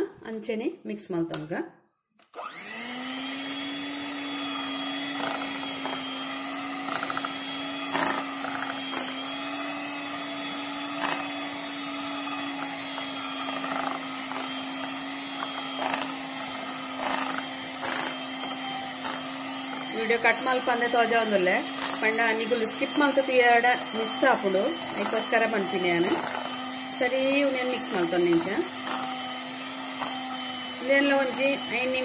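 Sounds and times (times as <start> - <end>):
electric hand mixer whining: 2.3 - 32.0.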